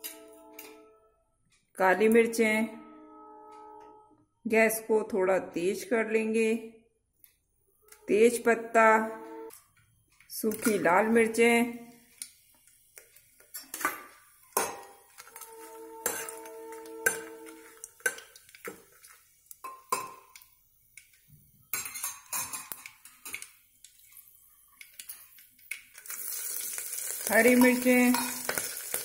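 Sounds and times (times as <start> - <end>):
ringing metallic note: 0.0 - 1.3, 2.0 - 4.5, 7.8 - 9.6, 15.3 - 17.9
spoon scraping metal pot: 13.5 - 19.2.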